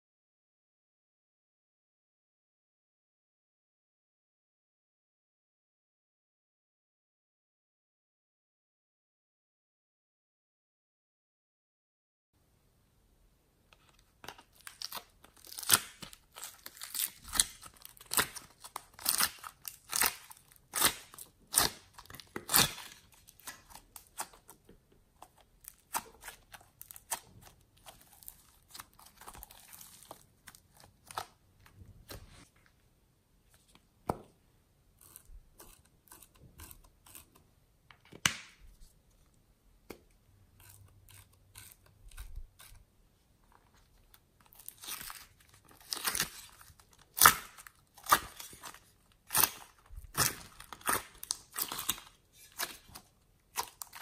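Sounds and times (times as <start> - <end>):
clay crackling and tearing: 13.8 - 32.5, 35.0 - 54.0.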